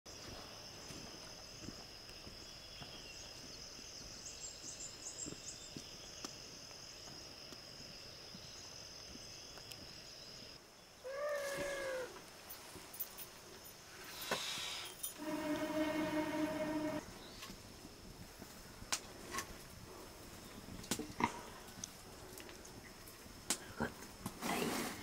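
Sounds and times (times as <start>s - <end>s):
pitched animal call: 11.0s - 12.2s
high-pitched insect drone: 14.6s - 17.1s.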